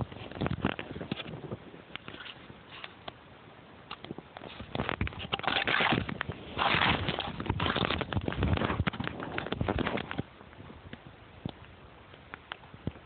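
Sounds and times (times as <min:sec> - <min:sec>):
crunches and scrapes on snow: 0:00.0 - 0:03.0, 0:04.4 - 0:10.3.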